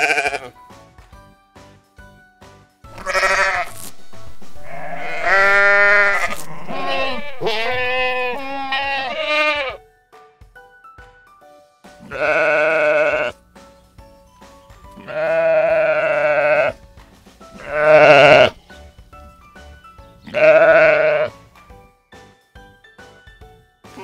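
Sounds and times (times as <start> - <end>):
sheep bleating: 0.0 - 0.6, 3.0 - 3.8, 4.6 - 9.8, 12.0 - 13.4, 15.0 - 16.8, 17.6 - 18.6, 20.3 - 21.3
faint background music: 0.0 - 24.0.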